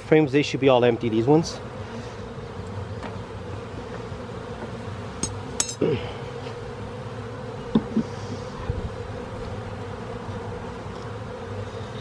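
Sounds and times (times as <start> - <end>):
honeybees buzzing: 0.0 - 12.0
clicks and knocks of hive frames: 2.2 - 6.9, 7.5 - 12.0.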